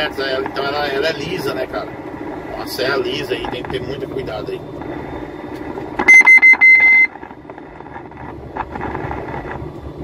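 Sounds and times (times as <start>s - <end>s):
truck cab running noise: 0.0s - 10.0s
electronic warning beeps: 6.0s - 7.2s.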